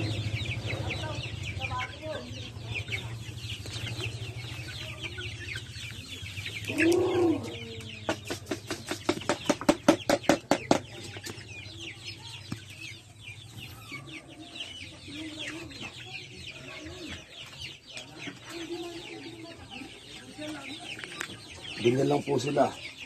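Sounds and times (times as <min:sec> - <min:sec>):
chickens clucking: 0:00.0 - 0:23.0
chicks peeping: 0:00.0 - 0:23.0
chicken squawk: 0:06.6 - 0:07.7
rapid sharp knocks: 0:08.1 - 0:10.9.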